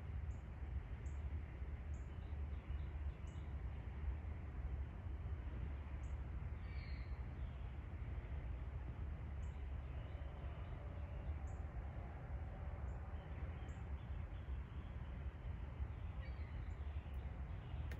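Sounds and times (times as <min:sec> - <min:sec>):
steady low rumble: 0:03.4 - 0:17.9
faint bird chirps: 0:15.9 - 0:17.9.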